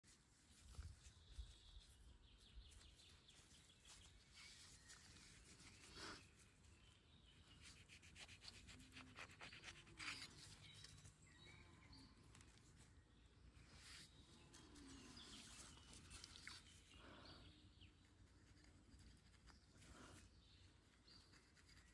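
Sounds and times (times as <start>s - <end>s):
bird chirps: 9.0s - 18.1s.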